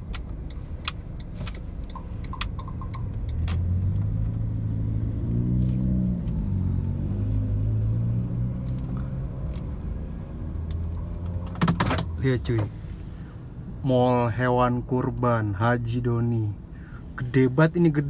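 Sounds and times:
car engine pulling away: 2.9s - 11.6s.

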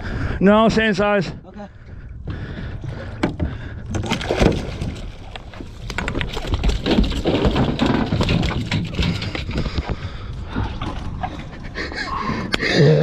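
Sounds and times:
fish thrashing and splashing: 3.8s - 11.8s.

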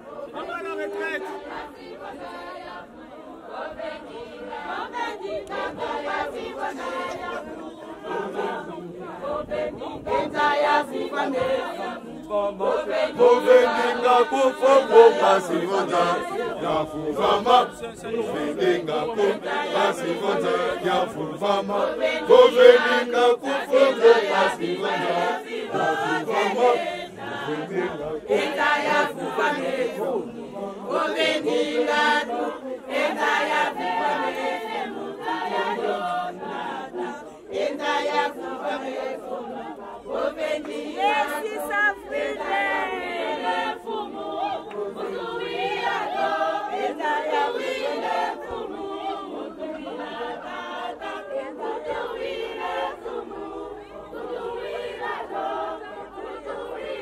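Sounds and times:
group singing chant-like choral song: 0.0s - 57.0s.

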